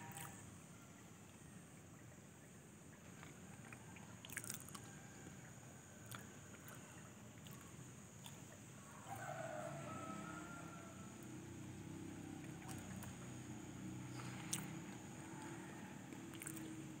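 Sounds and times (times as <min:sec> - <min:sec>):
soft crunchy clicks: 0:06.0 - 0:08.6.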